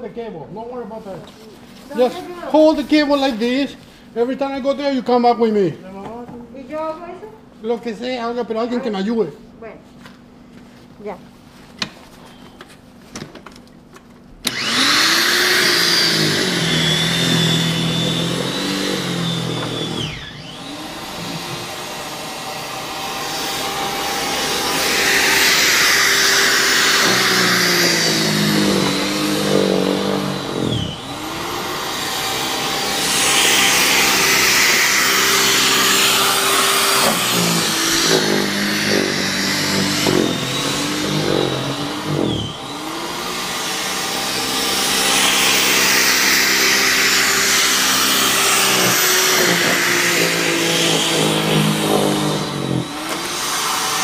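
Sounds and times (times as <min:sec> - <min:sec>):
electric snow thrower motor whine: 0:14.4 - 0:54.0.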